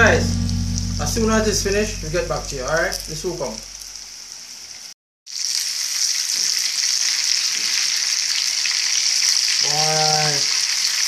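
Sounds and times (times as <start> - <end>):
fish sizzling in hot oil: 4.0 - 11.0.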